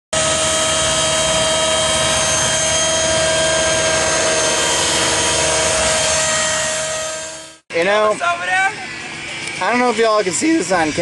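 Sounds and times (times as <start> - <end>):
model helicopter whine: 0.2 - 8.0.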